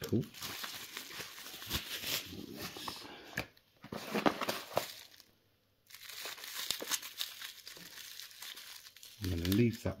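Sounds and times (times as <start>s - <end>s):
cardboard box rustling and crinkling: 3.8s - 5.2s.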